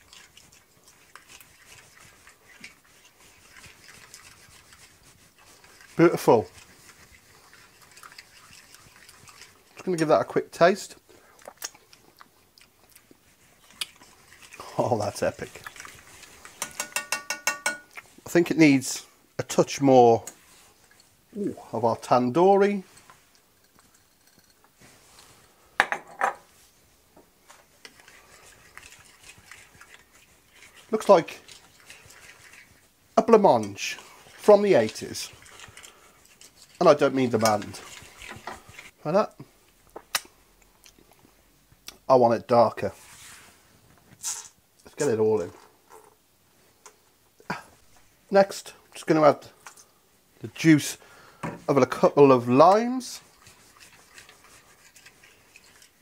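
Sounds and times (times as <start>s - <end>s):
utensil scraping ceramic bowl: 0.0s - 9.9s, 13.8s - 18.0s, 27.8s - 39.0s, 52.5s - 56.0s
spoon stirring thick marinade: 0.0s - 18.4s, 27.5s - 39.0s, 51.9s - 56.0s
spoon clinking on ceramic bowl: 16.6s - 17.9s.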